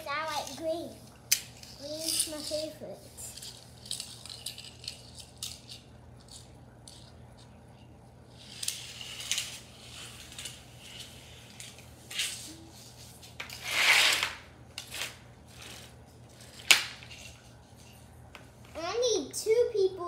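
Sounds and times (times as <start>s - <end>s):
toy cars clattering: 0.1s - 7.6s, 8.3s - 12.4s
plastic toy clicks and rattles: 1.3s - 7.5s.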